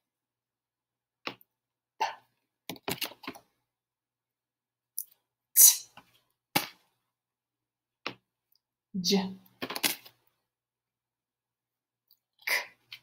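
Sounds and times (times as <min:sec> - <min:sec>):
woman saying letter sounds: 0:09.0 - 0:09.5.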